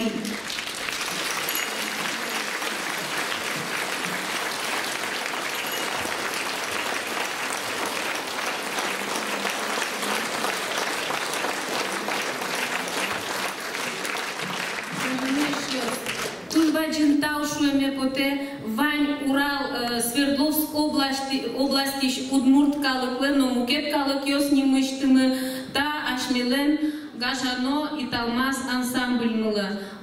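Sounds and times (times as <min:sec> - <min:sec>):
crowd applause: 0:00.0 - 0:16.7.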